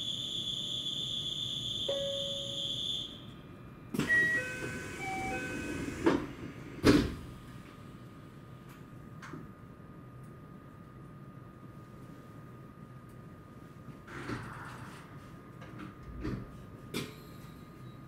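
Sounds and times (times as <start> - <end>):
train doors shutting with thumps: 3.9 - 7.4.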